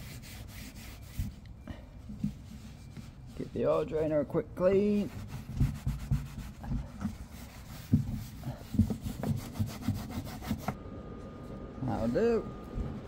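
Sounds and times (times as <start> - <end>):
rubbing strokes: 0.0 - 1.4, 2.1 - 4.2, 4.8 - 10.8.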